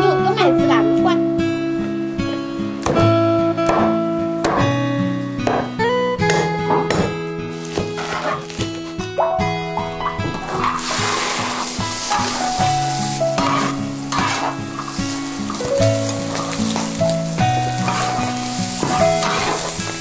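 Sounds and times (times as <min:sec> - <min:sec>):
slow melodic background music: 0:00.0 - 0:20.0
spatula stirring food in wok: 0:07.7 - 0:08.5, 0:10.5 - 0:20.0
hot oil sizzling in a wok: 0:10.7 - 0:20.0.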